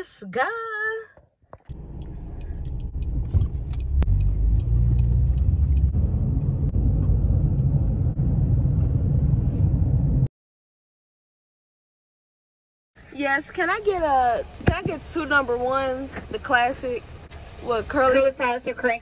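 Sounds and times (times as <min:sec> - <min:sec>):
car road and engine rumble: 0:01.3 - 0:10.3, 0:13.0 - 0:19.0.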